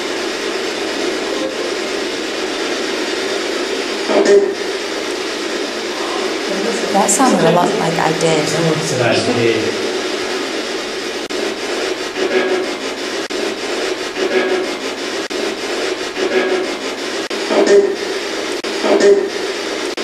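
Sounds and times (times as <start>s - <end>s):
radio static: 0.0s - 12.5s
static bursts: 0.0s - 20.0s.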